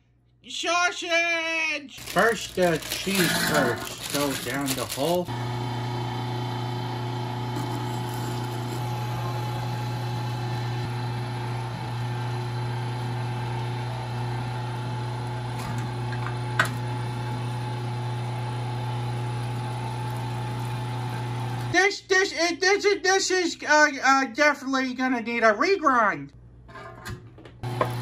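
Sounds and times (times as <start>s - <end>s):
electric meat grinder humming: 2.0s - 21.8s, 27.6s - 28.0s.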